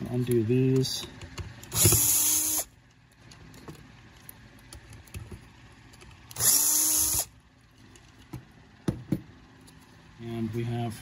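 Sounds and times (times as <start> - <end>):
cordless drill motor whirring: 1.7 - 2.7, 6.3 - 7.3.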